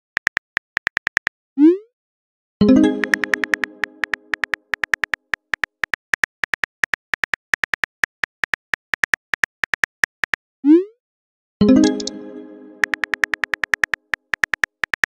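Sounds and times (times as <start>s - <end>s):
phone keyboard clicks: 0.0s - 1.3s, 3.0s - 10.4s, 12.8s - 15.0s
message chime: 2.6s - 4.3s, 11.6s - 13.3s.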